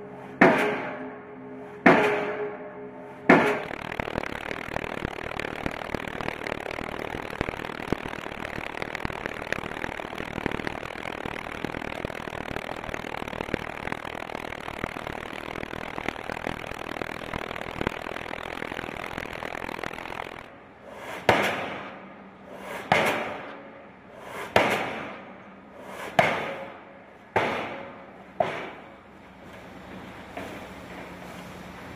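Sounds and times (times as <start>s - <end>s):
steady dense machine noise: 0.0s - 31.9s
pile hammer heavy blows: 0.3s - 1.2s, 1.8s - 2.7s, 3.3s - 3.7s, 21.1s - 22.0s, 22.7s - 23.7s, 24.3s - 25.3s, 26.0s - 28.9s.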